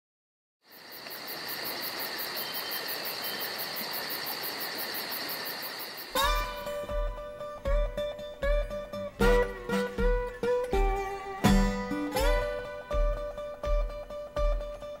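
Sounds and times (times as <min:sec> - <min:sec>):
insect chorus buzzing: 0:00.6 - 0:09.0
acoustic guitar plucking: 0:06.2 - 0:15.0.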